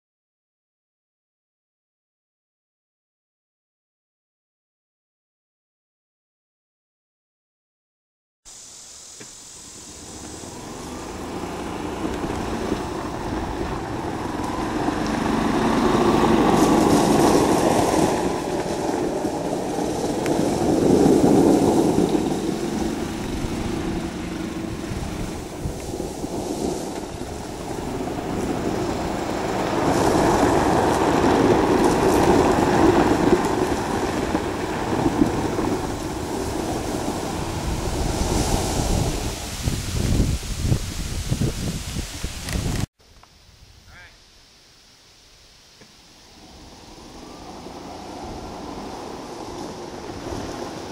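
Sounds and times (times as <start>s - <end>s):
golf cart driving on gravel: 8.7s - 43.4s, 45.8s - 50.9s.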